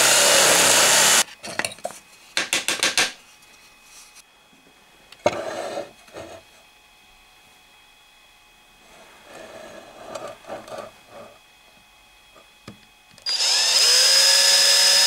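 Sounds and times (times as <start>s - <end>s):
drill press boring into wood: 0.0s - 1.2s, 13.2s - 15.0s.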